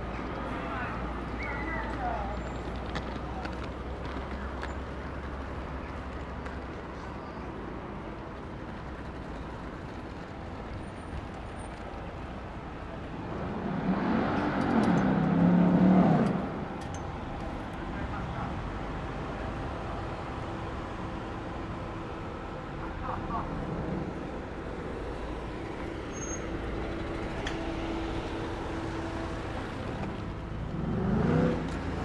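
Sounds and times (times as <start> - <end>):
street ambience: 0.0 - 32.0
motor vehicle passing: 23.3 - 32.0.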